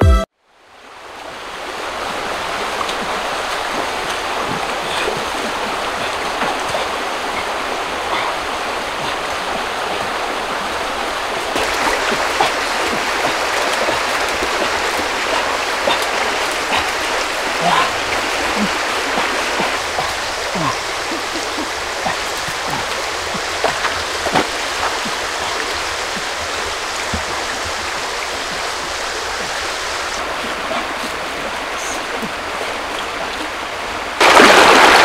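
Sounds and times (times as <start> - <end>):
stream flowing over stones: 0.5 - 35.0.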